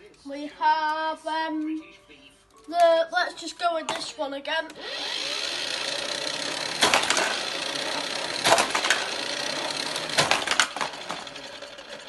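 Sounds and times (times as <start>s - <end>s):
motorized toy booster whirring: 4.7s - 12.0s
toy car clattering on track: 4.9s - 12.0s.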